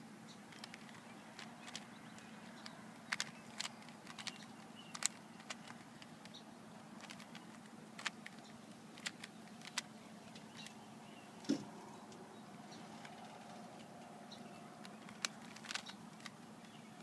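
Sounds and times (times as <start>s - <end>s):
faint low hum: 0.0s - 17.0s
puzzle cube layers clicking: 0.5s - 6.1s, 7.0s - 8.4s, 9.0s - 9.9s, 14.8s - 16.4s.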